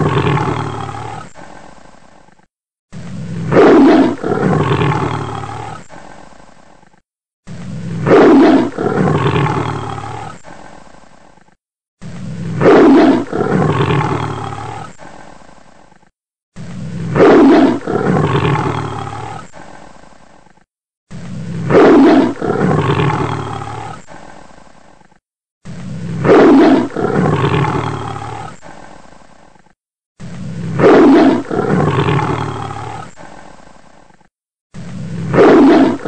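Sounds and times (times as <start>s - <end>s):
big cat roaring: 0.0s - 1.5s, 3.0s - 5.9s, 7.7s - 10.6s, 12.1s - 15.0s, 17.0s - 19.6s, 21.2s - 24.2s, 25.7s - 28.7s, 30.2s - 33.3s, 34.8s - 36.0s.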